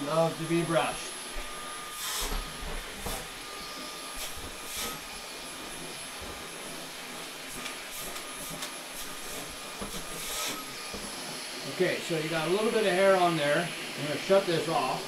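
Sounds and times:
stick vacuum running: 0:00.0 - 0:15.0.

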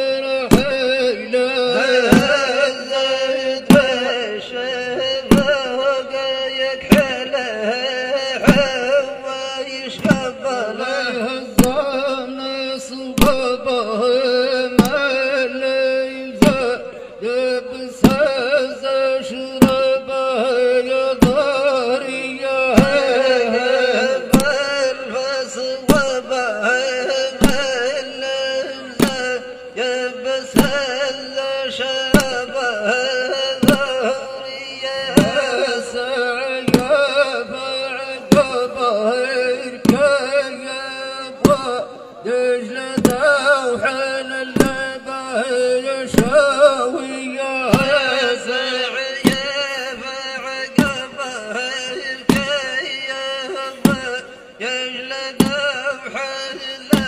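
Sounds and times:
person chanting a wavering melody: 0:00.0 - 0:57.0
drum hits: 0:00.5 - 0:00.9, 0:01.7 - 0:04.2, 0:04.9 - 0:07.4, 0:08.3 - 0:09.1, 0:09.8 - 0:10.8, 0:11.4 - 0:12.1, 0:13.2 - 0:13.7, 0:14.7 - 0:15.6, 0:16.3 - 0:16.8, 0:17.9 - 0:20.1, 0:20.8 - 0:22.1, 0:22.7 - 0:29.5, 0:30.2 - 0:40.6, 0:41.3 - 0:41.9, 0:42.9 - 0:45.2, 0:46.0 - 0:46.9, 0:47.5 - 0:54.4, 0:55.0 - 0:57.0.

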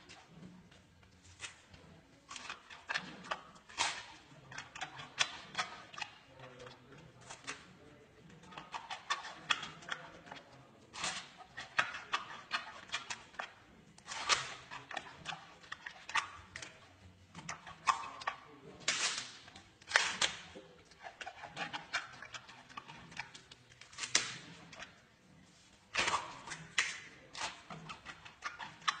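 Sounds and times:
panda chewing bamboo: 0:00.0 - 0:29.0.

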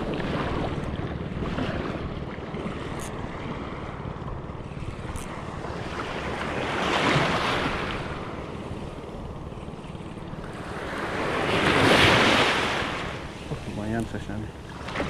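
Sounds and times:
small sea waves washing: 0:00.0 - 0:15.0
wind buffeting microphone: 0:00.0 - 0:15.0
wave breaking: 0:04.8 - 0:09.1, 0:10.4 - 0:15.0.

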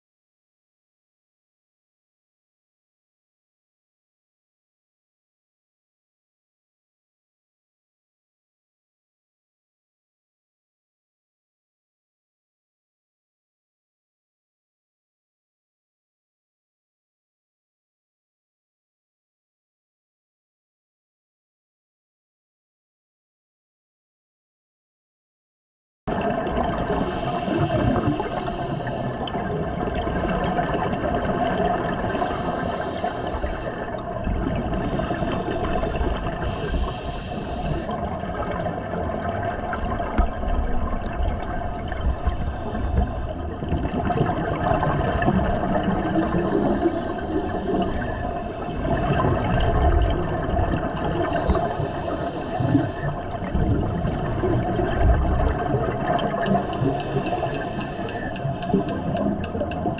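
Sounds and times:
exhaled bubbles hissing underwater: 0:26.1 - 0:59.9
underwater water noise: 0:26.1 - 0:59.9
faint steady hum: 0:26.5 - 0:59.9.

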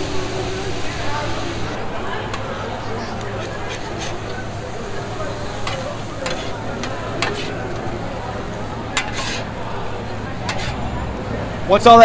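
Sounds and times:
food sizzling on griddle: 0:00.0 - 0:10.9
water steaming on hot steel: 0:00.0 - 0:11.6
spatulas scraping on griddle: 0:02.2 - 0:11.0.

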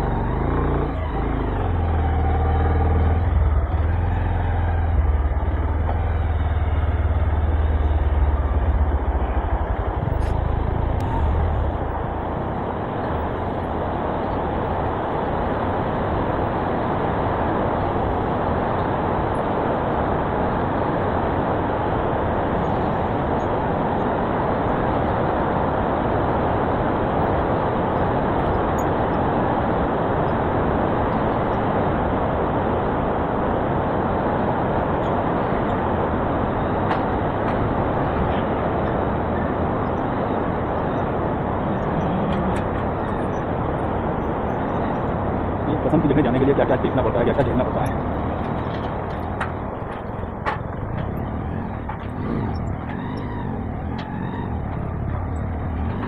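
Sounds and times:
motorcycle engine rumble: 0:00.0 - 0:56.0
steady rushing noise: 0:00.0 - 0:56.0.

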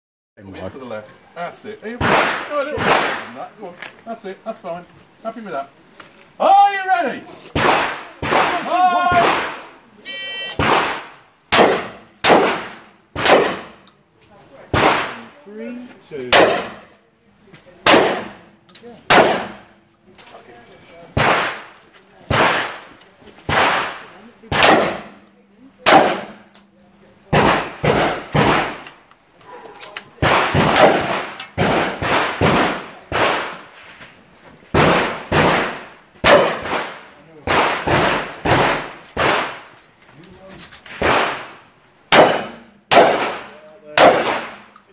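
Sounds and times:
shotgun shots echoing: 0:02.0 - 0:03.5, 0:07.6 - 0:09.7, 0:10.5 - 0:13.8, 0:14.7 - 0:15.3, 0:16.3 - 0:16.9, 0:17.8 - 0:18.5, 0:19.1 - 0:19.7, 0:21.2 - 0:22.9, 0:23.5 - 0:25.2, 0:25.8 - 0:26.5, 0:27.3 - 0:28.9, 0:30.2 - 0:33.7, 0:34.7 - 0:39.7, 0:40.9 - 0:44.7.

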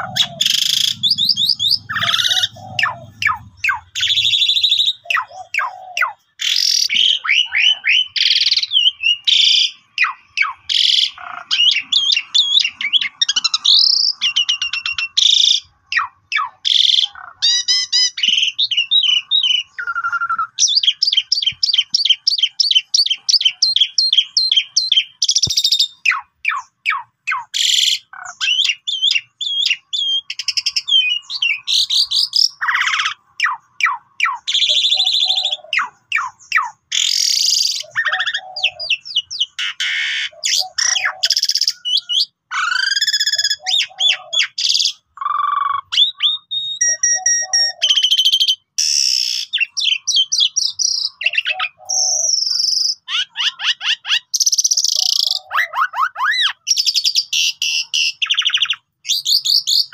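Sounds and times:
starling singing varied song: 0:00.0 - 0:42.4.

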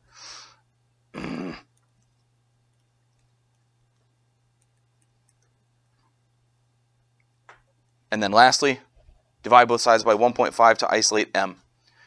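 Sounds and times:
faint steady hum: 0:00.0 - 0:12.0
short vocal sound: 0:01.2 - 0:01.7.

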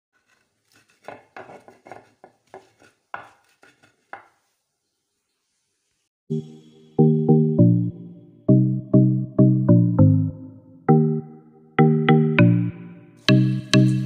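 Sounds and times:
wooden pestle pounding in bowl: 0:00.9 - 0:04.4
loud music: 0:06.3 - 0:14.0.

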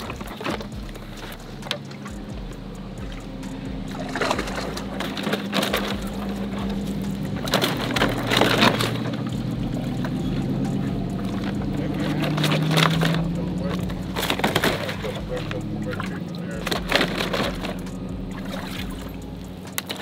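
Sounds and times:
low engine hum: 0:00.0 - 0:20.0
water sloshing and splashing: 0:00.0 - 0:20.0.

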